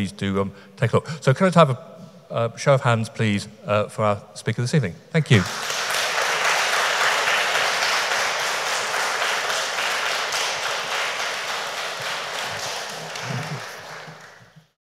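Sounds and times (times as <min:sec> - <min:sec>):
audience applauding: 0:05.4 - 0:14.8.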